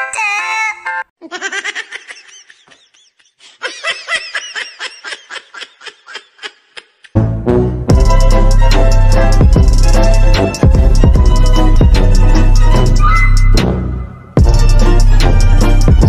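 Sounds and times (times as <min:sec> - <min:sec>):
rapid high-pitched laughter: 0:01.2 - 0:07.2
loud music with heavy bass beat: 0:07.9 - 0:16.0.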